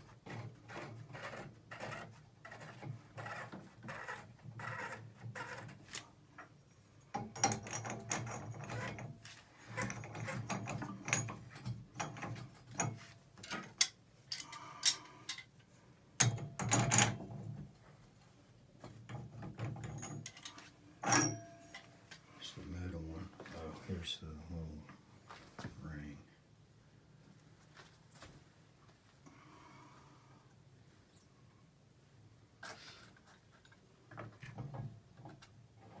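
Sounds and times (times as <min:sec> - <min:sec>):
wrench clicking and scraping on metal: 0:00.3 - 0:15.6, 0:19.1 - 0:21.9.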